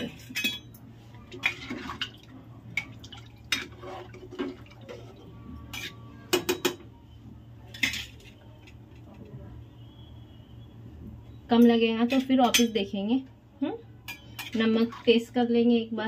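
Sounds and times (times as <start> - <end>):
low steady hum: 0.0 - 16.0
metal spoon clinking against pot: 0.1 - 0.8, 7.7 - 8.8, 11.6 - 12.9, 14.0 - 14.9.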